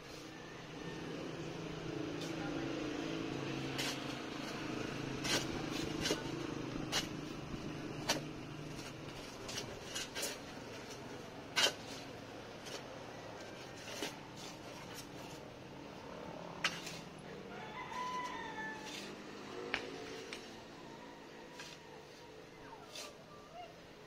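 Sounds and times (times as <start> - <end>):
shovel scraping stony ground: 3.6 - 15.6, 16.5 - 17.2, 17.9 - 20.7, 21.3 - 23.3.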